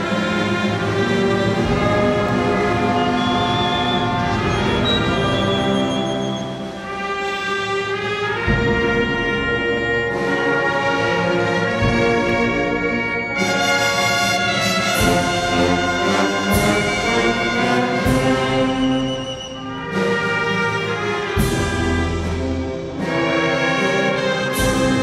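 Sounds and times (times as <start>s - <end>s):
brass band chords: 0.0s - 25.0s.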